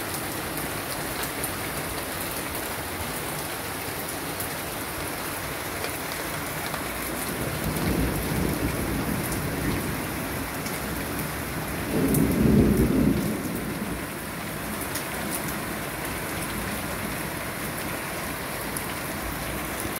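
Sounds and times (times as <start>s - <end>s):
steady rain: 0.0s - 19.9s
thunder rumbling: 6.7s - 17.3s.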